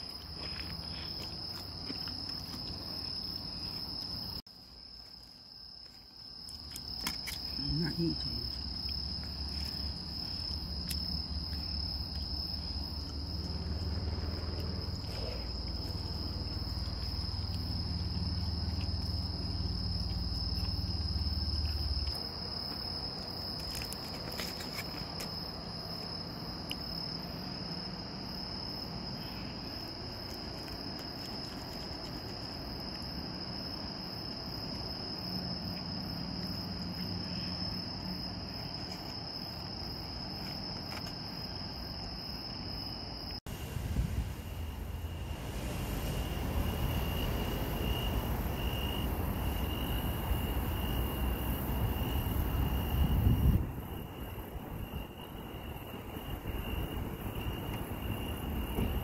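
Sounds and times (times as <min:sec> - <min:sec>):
high-pitched insect trill: 0:00.0 - 0:43.4, 0:44.4 - 0:59.0
low rumble: 0:43.5 - 0:49.3.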